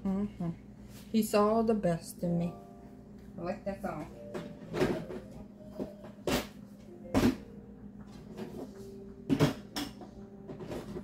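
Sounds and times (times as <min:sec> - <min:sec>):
household items knocking and clattering: 0:04.2 - 0:11.0.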